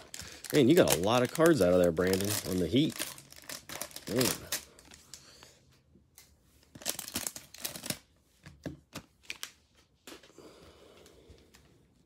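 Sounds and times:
plastic wrapper crinkling: 0.0s - 5.4s, 6.6s - 8.1s.

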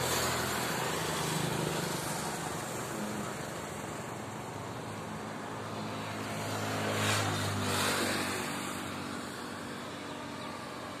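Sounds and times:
motorcycle passing: 5.7s - 11.0s.

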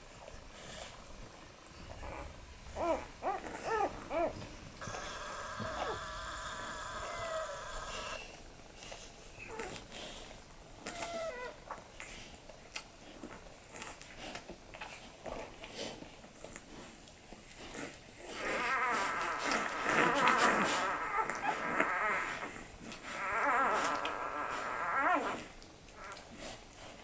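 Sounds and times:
puppies squeaking: 2.0s - 8.3s, 23.1s - 25.4s.

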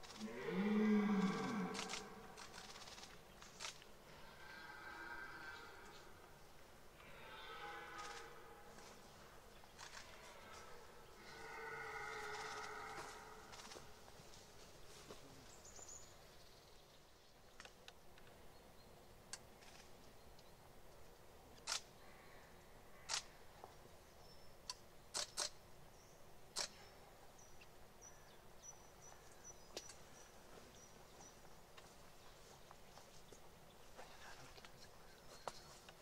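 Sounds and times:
sharp clicks: 1.7s - 3.9s, 24.6s - 25.6s.

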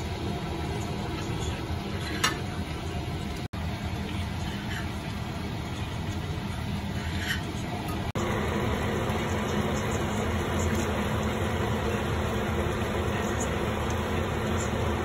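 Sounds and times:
extractor fan hum: 8.1s - 15.0s
soup simmering: 8.2s - 15.0s.

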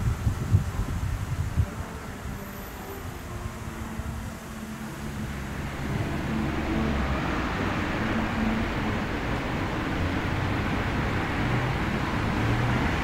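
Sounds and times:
wind band holding long notes: 0.0s - 13.0s
low rumble: 3.8s - 10.7s.

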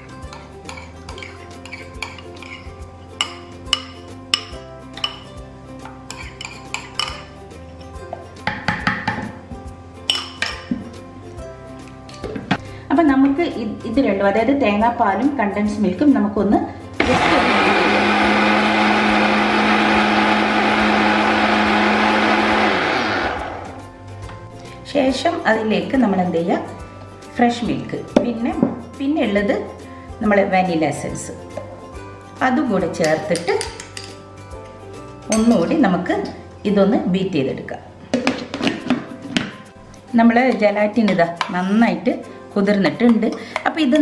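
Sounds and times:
soft background music: 0.0s - 44.0s
metal spoon clinking on bowl: 6.1s - 7.2s, 10.1s - 10.6s, 33.0s - 34.2s, 35.2s - 35.7s
blender running: 17.0s - 23.8s.

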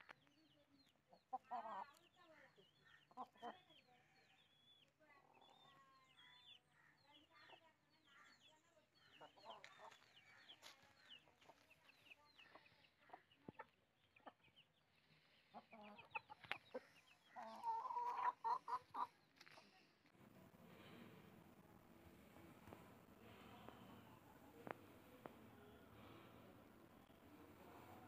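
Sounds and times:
chickens clucking: 0.1s - 4.5s, 9.1s - 19.8s.

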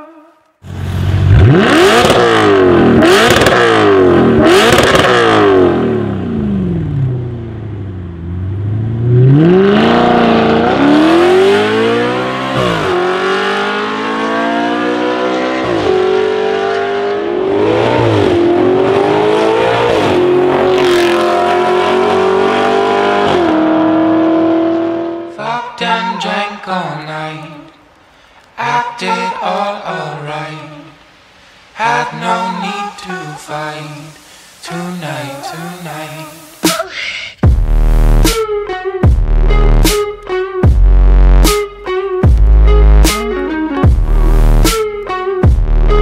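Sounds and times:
car accelerating with upshifts: 0.6s - 25.4s, 42.3s - 44.7s
car engine revving: 0.6s - 25.4s, 37.4s - 38.4s, 42.2s - 44.8s.

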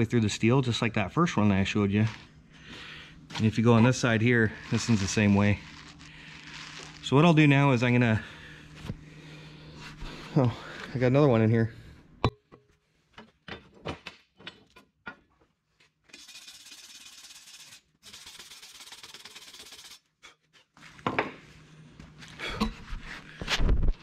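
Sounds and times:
wire brush scrubbing steel: 3.4s - 7.1s, 16.1s - 20.1s.

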